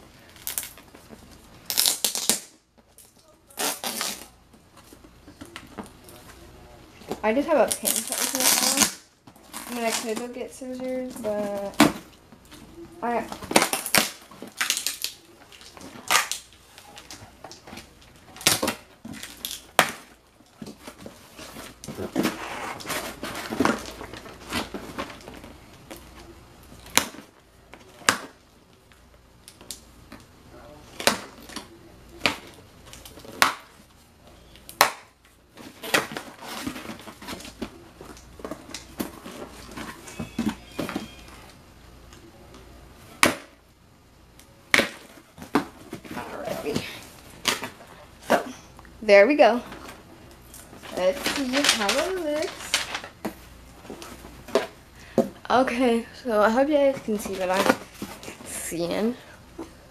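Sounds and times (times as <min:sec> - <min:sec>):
cardboard flaps tearing: 0:07.8 - 0:10.2.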